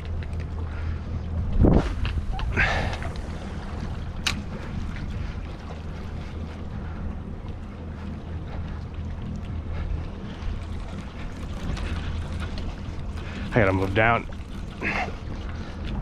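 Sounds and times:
wind rumble on microphone: 0.0 - 16.0.

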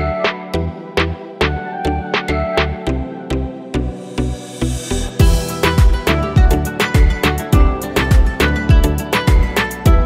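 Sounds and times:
deep kick drum: 5.2 - 10.0.

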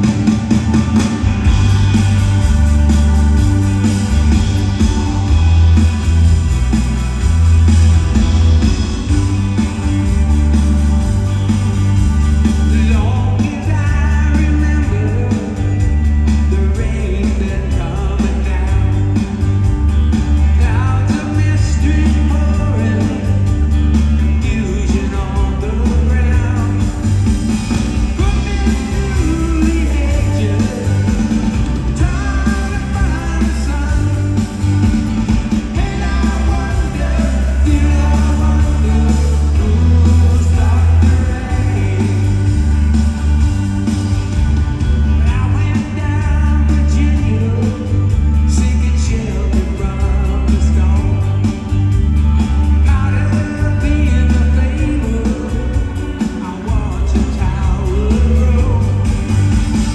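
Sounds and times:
drums: 0.0 - 59.9
electric bass: 0.0 - 59.9
electric guitars: 0.0 - 59.9
male lead vocal singing: 12.6 - 19.4, 20.4 - 23.6, 24.2 - 27.0, 28.0 - 34.6, 35.6 - 42.9, 45.2 - 51.6, 52.8 - 59.3.

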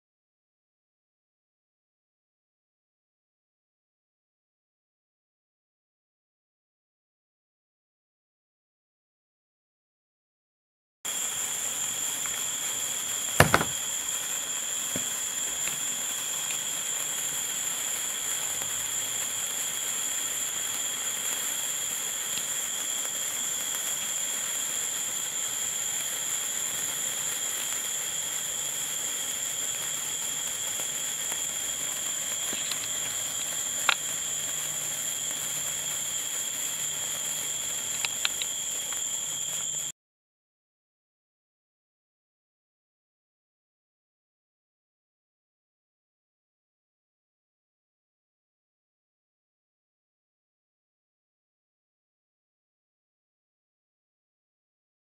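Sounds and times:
sparkler fizzing: 11.1 - 39.9
sharp knock: 13.4 - 13.8
faint clicks: 37.8 - 39.0.

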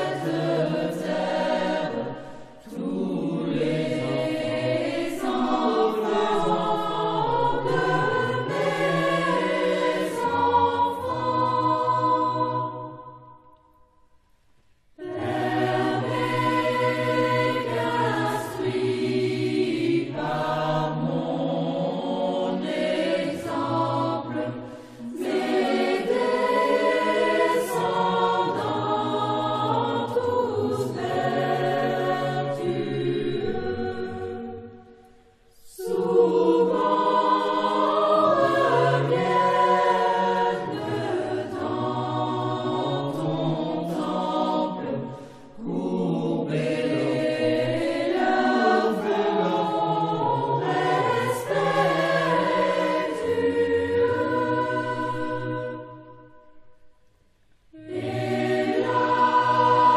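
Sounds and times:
choir singing: 0.0 - 14.2, 14.9 - 57.1, 57.7 - 59.9.

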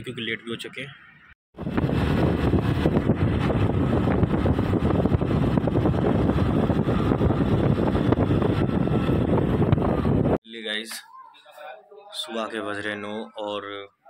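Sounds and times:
road noise: 0.0 - 10.4
wind buffeting microphone: 1.5 - 10.4
motorcycle engine running: 1.6 - 10.4.

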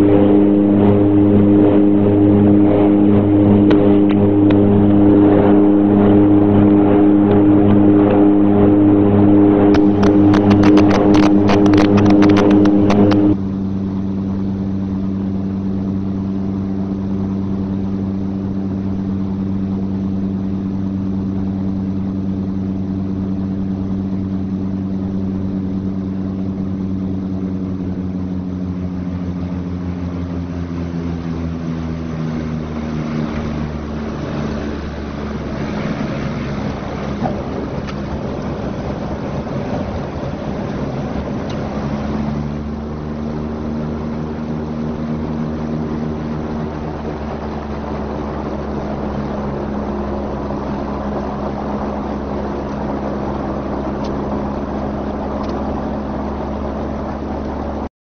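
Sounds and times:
rough rushing noise: 0.0 - 13.6, 30.2 - 57.9
turboprop engines droning: 0.0 - 57.9.

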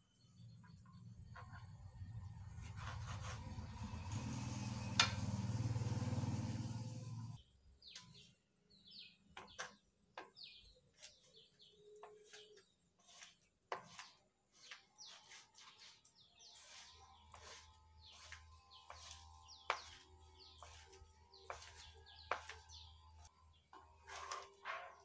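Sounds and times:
knife chopping fish on cutting board: 16.7 - 20.0, 20.6 - 22.7.

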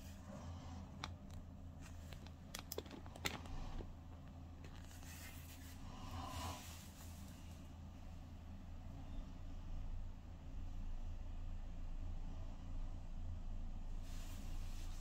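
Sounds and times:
steady low hum: 0.0 - 15.0
soft rustle: 1.7 - 7.7, 14.0 - 15.0.

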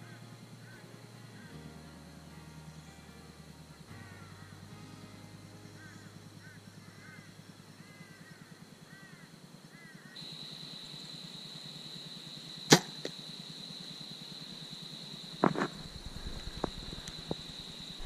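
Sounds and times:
birds chirping: 0.0 - 18.0
high-pitched whine: 0.0 - 18.0
bowstring snap: 12.7 - 13.2.

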